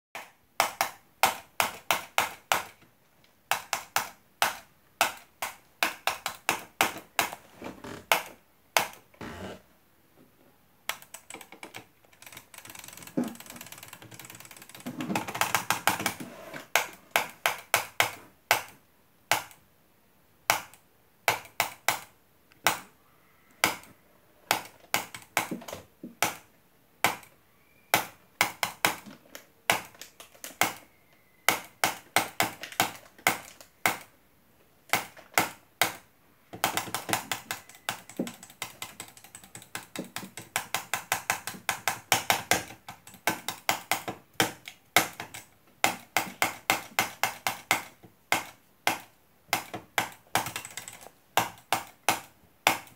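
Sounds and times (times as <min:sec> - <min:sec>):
computer mouse clicking: 0:10.9 - 0:19.6, 0:36.6 - 0:52.9.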